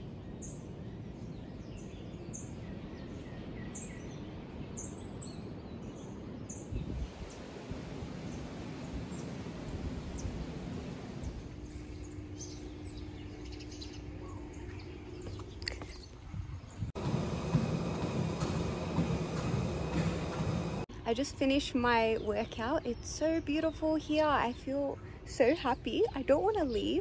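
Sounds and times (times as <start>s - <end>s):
birds chirping: 0.0s - 20.9s
faint steady hum: 5.5s - 27.0s.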